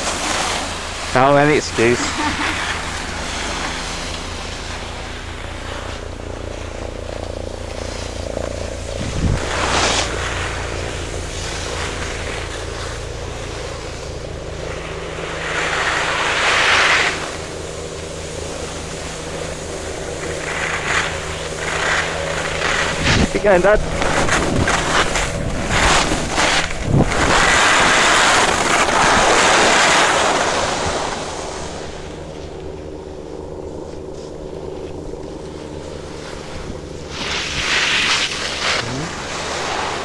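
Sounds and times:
faint steady hum: 0.0 - 40.0
skis scraping over packed snow: 0.0 - 40.0
wind buffeting microphone: 8.2 - 13.4, 18.9 - 37.7.

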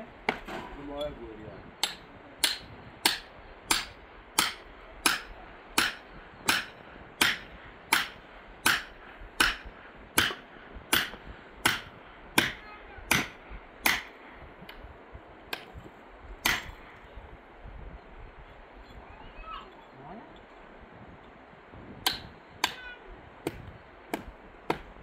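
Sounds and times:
hard blows with a tool: 1.8 - 14.2, 16.4 - 17.0, 22.0 - 25.0.

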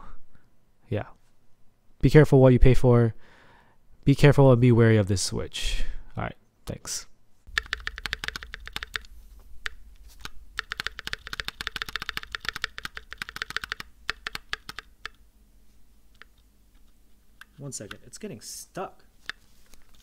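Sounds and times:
mechanical keyboard typing: 7.5 - 15.2.

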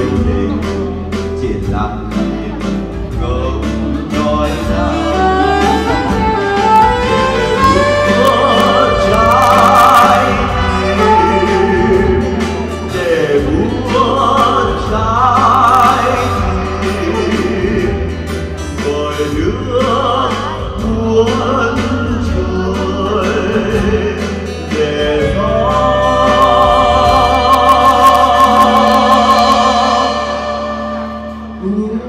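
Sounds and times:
acoustic guitar: 0.0 - 32.0
keyboard: 0.0 - 32.0
man singing a slow ballad: 0.0 - 32.0
saxophone: 3.8 - 13.7.

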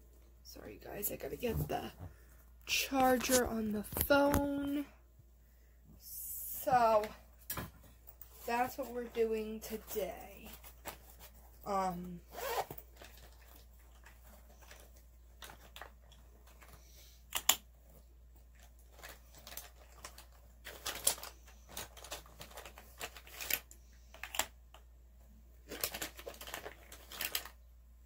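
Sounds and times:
plastic rustling and crinkling: 0.9 - 4.8, 6.6 - 24.8, 25.6 - 27.7
sharp plastic clicks: 17.3 - 17.6.

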